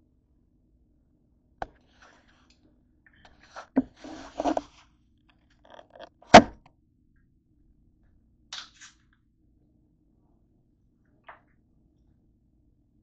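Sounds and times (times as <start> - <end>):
scraping rustle: 3.3 - 4.9.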